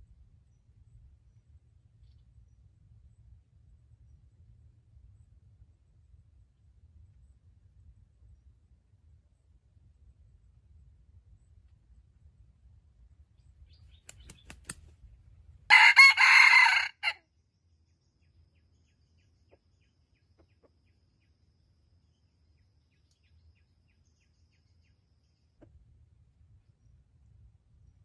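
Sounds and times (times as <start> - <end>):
faint sharp clicks: 14.0 - 14.9
rooster crowing: 15.7 - 17.2.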